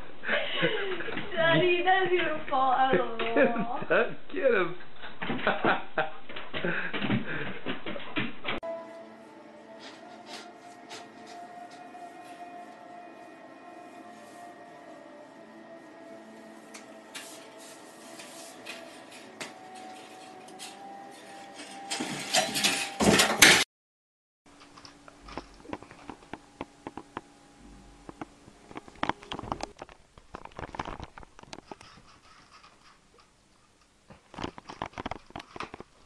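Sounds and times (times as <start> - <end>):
fabric rustling: 9.8 - 21.9
claws scraping and clicking: 28.1 - 36.0.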